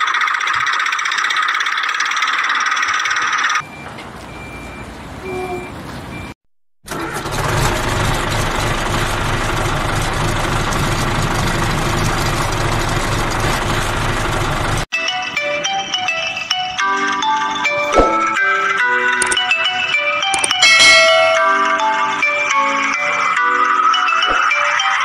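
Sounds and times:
toy tractor engine drone: 0:00.0 - 0:03.6, 0:06.9 - 0:14.8
short high beeps: 0:20.3 - 0:21.9.

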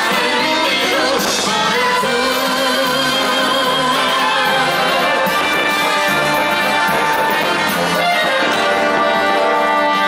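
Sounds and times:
orchestral brass chords: 0:02.0 - 0:10.0.

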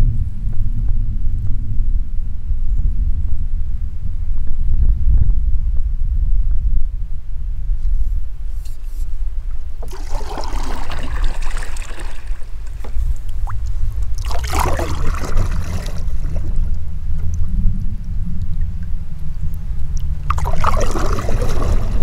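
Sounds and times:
steady low rumble: 0:00.0 - 0:22.0
canoe paddle swishing water: 0:09.8 - 0:17.0, 0:20.1 - 0:22.0.

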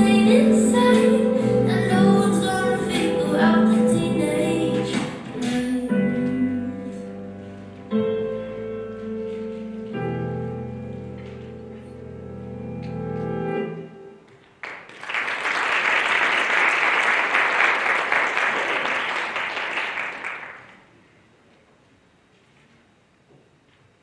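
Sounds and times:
audience applause: 0:14.6 - 0:20.8.

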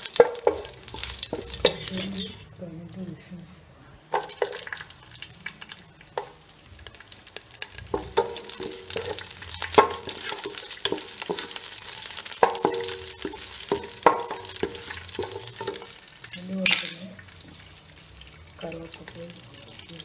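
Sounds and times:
spoon scraping and knocking pan: 0:00.0 - 0:02.5, 0:04.1 - 0:04.9, 0:06.1 - 0:16.0
nuts sizzling in a pan: 0:00.0 - 0:03.1, 0:04.0 - 0:20.0.

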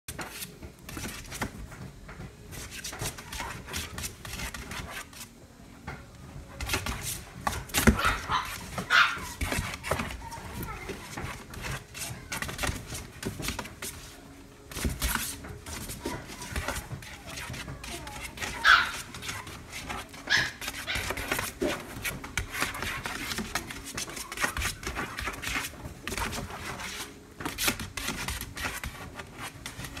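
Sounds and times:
rustling and scratching on fabric: 0:00.1 - 0:05.6, 0:06.2 - 0:30.0
puppy yipping: 0:07.8 - 0:09.5, 0:18.5 - 0:19.5, 0:20.2 - 0:21.4.

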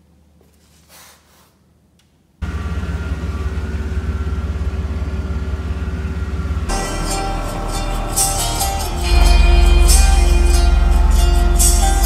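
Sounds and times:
car engine running: 0:02.4 - 0:12.0.

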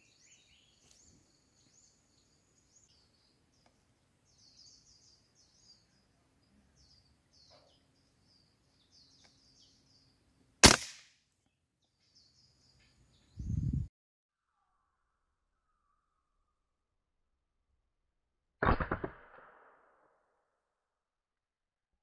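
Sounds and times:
small birds chirping: 0:00.0 - 0:10.4, 0:11.4 - 0:13.9
rifle shot: 0:10.6 - 0:11.2, 0:18.6 - 0:20.0.

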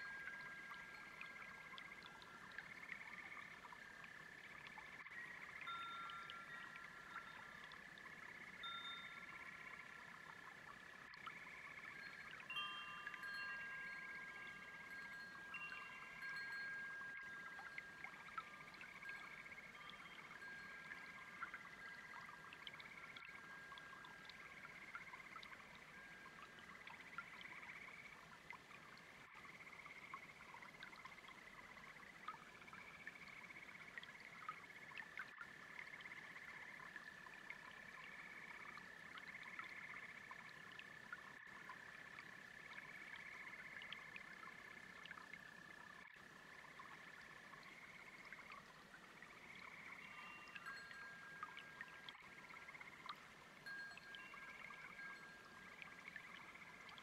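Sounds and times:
wind chime tone: 0:00.0 - 0:02.5, 0:05.1 - 0:07.7, 0:08.5 - 0:10.1, 0:11.8 - 0:26.6, 0:50.0 - 0:52.8, 0:53.6 - 0:56.8
brook bubbling: 0:00.0 - 0:57.0
frogs trilling: 0:00.0 - 0:57.0.

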